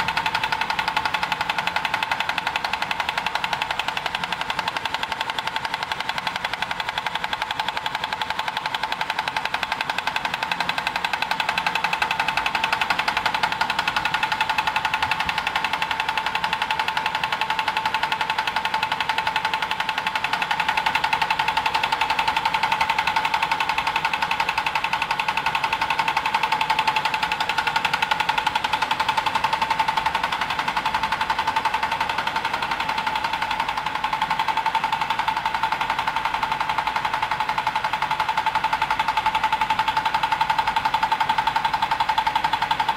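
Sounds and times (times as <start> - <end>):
machine mechanical rattle: 0.0 - 42.9
machine steady whine: 0.0 - 42.9.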